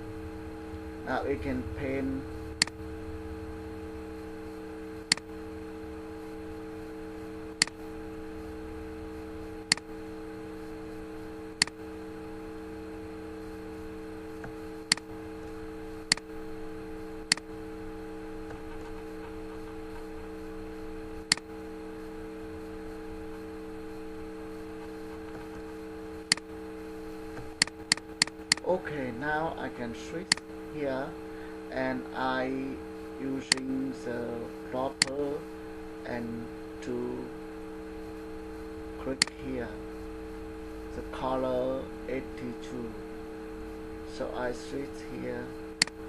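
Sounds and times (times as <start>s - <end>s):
steady electrical hum: 0.0s - 46.0s
computer mouse clicks: 16.1s - 16.3s, 26.3s - 26.5s, 27.6s - 28.6s, 33.5s - 33.7s.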